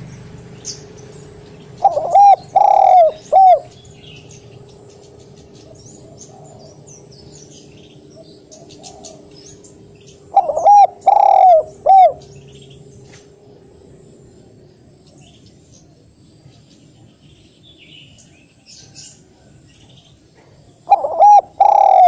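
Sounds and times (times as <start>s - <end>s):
dove cooing: 1.6s - 4.6s, 5.5s - 13.0s, 20.4s - 22.0s.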